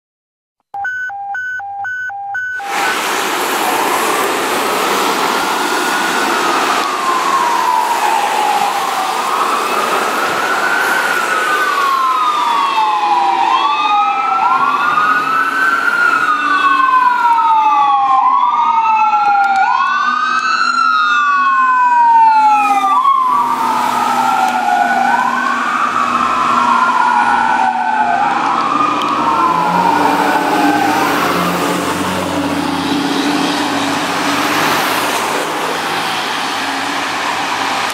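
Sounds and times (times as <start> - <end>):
wailing sirens: 1.4 - 37.9.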